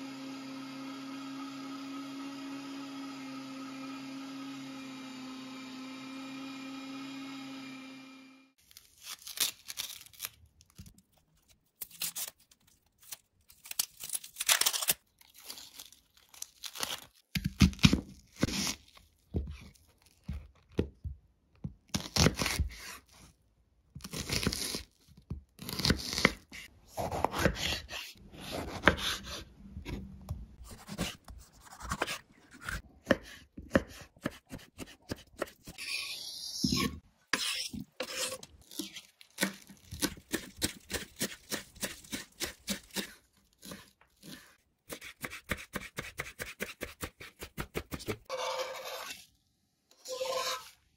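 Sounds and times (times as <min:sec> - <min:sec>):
onion skin tearing: 0:08.6 - 0:11.0, 0:11.7 - 0:20.3, 0:24.0 - 0:28.1
knife slicing onion: 0:16.7 - 0:20.8, 0:21.9 - 0:23.3, 0:23.9 - 0:49.3, 0:50.0 - 0:50.8.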